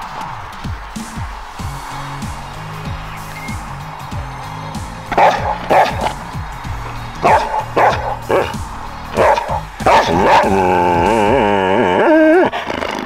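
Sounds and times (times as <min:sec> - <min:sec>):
background music: 0:00.0 - 0:12.5
dog barking: 0:05.1 - 0:06.2, 0:07.2 - 0:08.6, 0:09.2 - 0:10.7
dog howling: 0:05.1 - 0:12.7.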